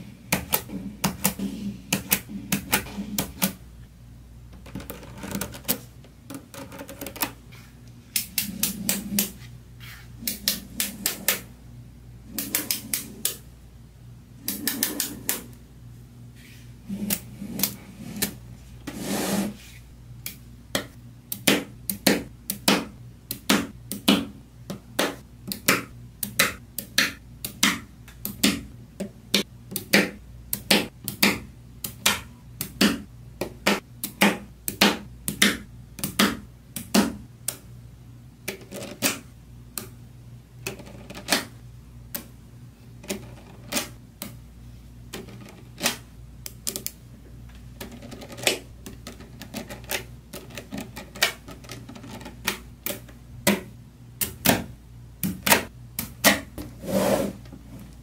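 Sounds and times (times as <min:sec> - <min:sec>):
magnetic balls clicking: 0:04.5 - 0:07.4, 0:20.2 - 0:37.7, 0:38.4 - 0:42.3, 0:45.1 - 0:56.3.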